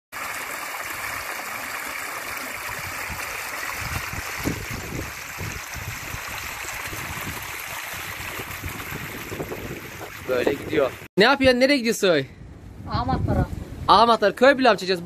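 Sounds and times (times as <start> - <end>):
stream trickling over stones: 0.1 - 11.1.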